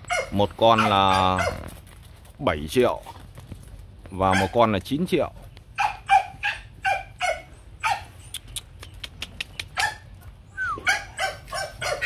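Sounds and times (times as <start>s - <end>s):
dogs barking: 0.0s - 1.7s, 4.3s - 4.7s, 5.7s - 8.3s, 9.7s - 12.0s.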